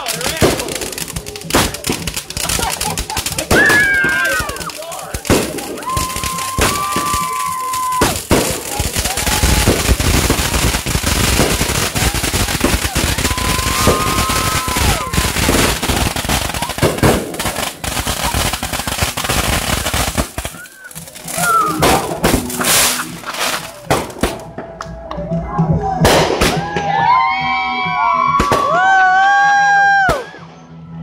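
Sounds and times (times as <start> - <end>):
firework whistling: 0.0 - 24.4
fireworks bangs and crackling: 0.0 - 27.3, 28.2 - 29.3.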